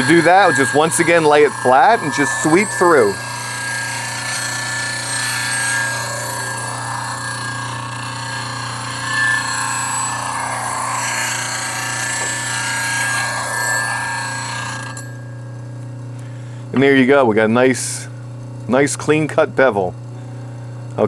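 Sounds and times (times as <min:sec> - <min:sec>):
steel grinding hiss: 0:00.0 - 0:15.2
bench grinder motor hum: 0:00.0 - 0:15.9.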